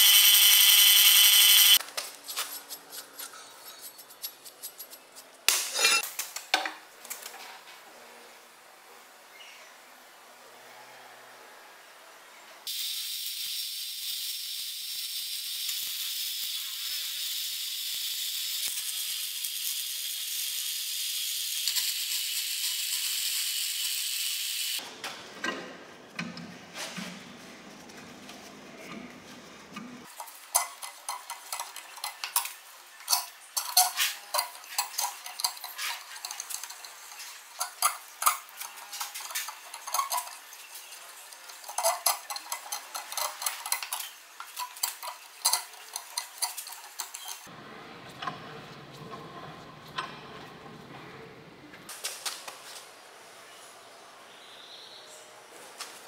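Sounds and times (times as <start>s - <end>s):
arc welding crackling hiss: 0.0s - 2.4s, 12.7s - 24.8s.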